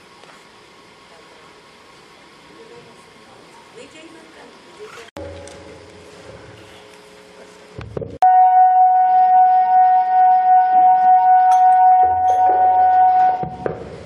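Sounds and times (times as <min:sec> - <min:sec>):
conch shell blown: 0:08.2 - 0:13.7.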